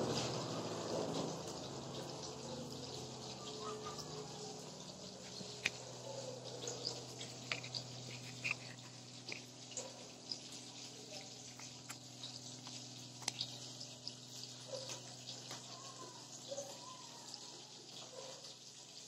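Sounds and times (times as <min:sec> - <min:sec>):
spoon scraping pot: 0:04.4 - 0:13.6
onions sizzling in oil: 0:06.7 - 0:19.0.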